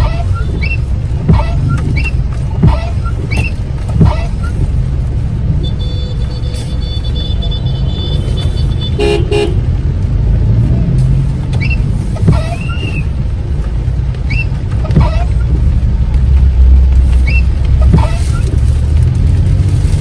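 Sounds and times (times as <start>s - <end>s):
short squeaks: 0.0s - 4.6s, 11.6s - 13.1s, 14.2s - 15.5s, 17.2s - 18.6s
car rumbling on road: 0.0s - 20.0s
vehicle horn toots: 5.6s - 9.6s.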